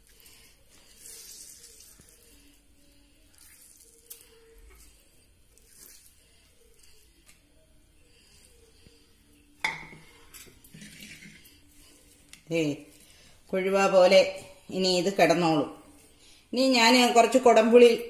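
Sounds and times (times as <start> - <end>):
hands squeezing wet vegetables: 0.0 - 9.3.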